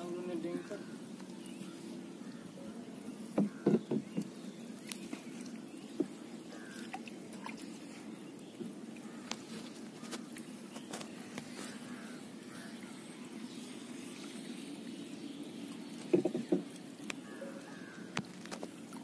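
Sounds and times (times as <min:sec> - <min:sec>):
net and weights knocking on hull: 0:03.3 - 0:04.3, 0:16.0 - 0:16.7.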